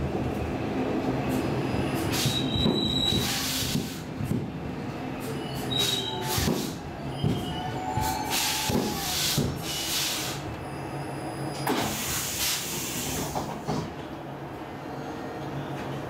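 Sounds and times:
compressed air hisses: 8.3s - 10.4s, 11.8s - 13.4s.

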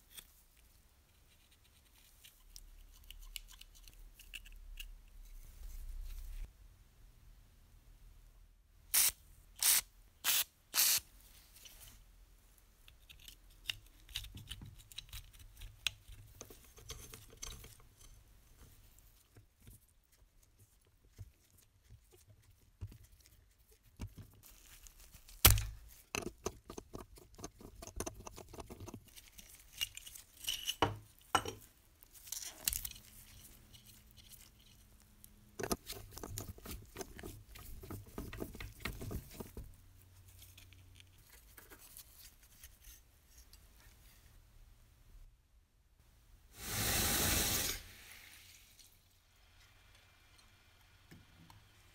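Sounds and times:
clicks and scrapes: 12.8s - 44.4s
metal parts handling noise: 29.4s - 31.6s.

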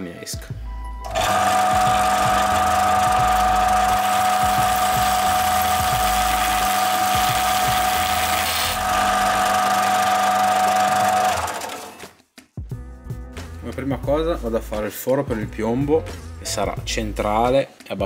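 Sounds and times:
belt sander whining: 1.0s - 12.0s.

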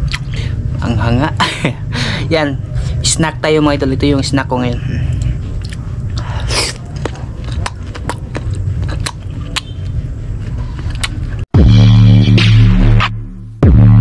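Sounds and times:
crunchy biting and chewing: 0.0s - 0.4s, 5.1s - 11.4s
loud electronic music: 11.6s - 14.0s.

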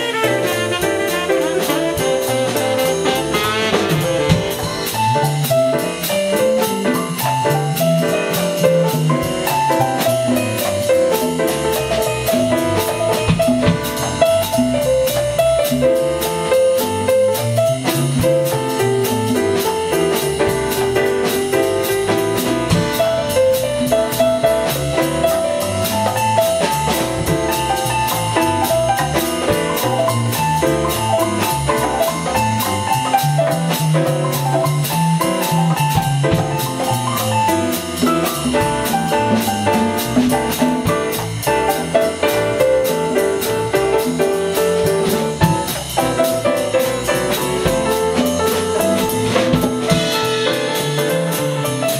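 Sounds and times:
drum kit cymbals: 0.0s - 51.9s
jazz piano: 0.0s - 51.9s
walking electric bass: 8.5s - 51.4s.

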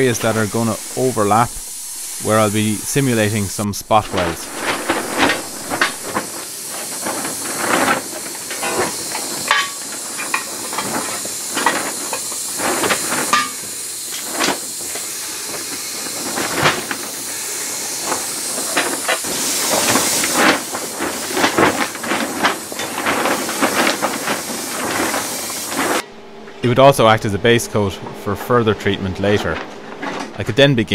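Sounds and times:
compressed air hiss: 0.0s - 26.0s.

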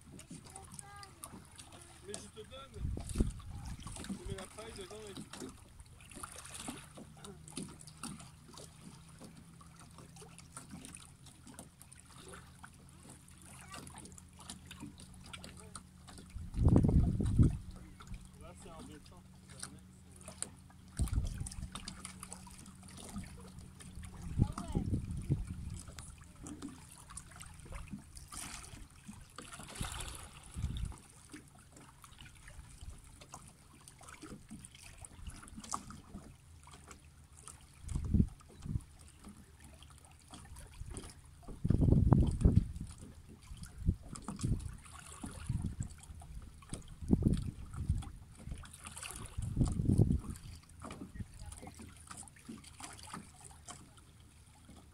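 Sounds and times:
small clicks and splashes: 0.0s - 54.9s
water lapping among rocks: 0.0s - 54.9s
low wind rumble: 2.7s - 3.9s, 16.3s - 18.0s, 23.6s - 25.9s, 41.6s - 42.9s.

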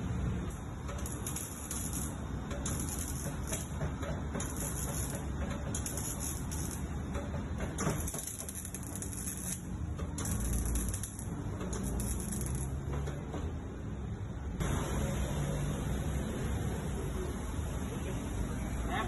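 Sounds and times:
welding arc crackling: 0.0s - 12.9s.

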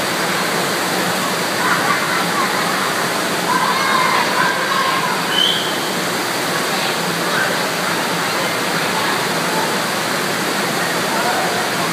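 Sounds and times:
water rushing: 0.0s - 11.9s.

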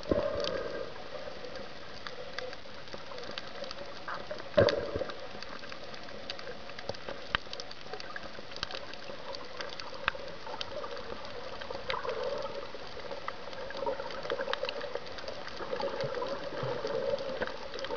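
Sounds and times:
underwater hiss: 0.0s - 1.7s
sharp clicks and crackles: 0.0s - 17.9s
water rushing: 0.0s - 17.9s.

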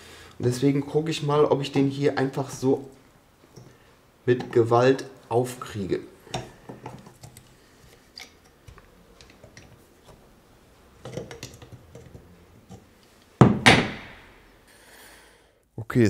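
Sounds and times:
loud knock: 13.4s - 14.4s.

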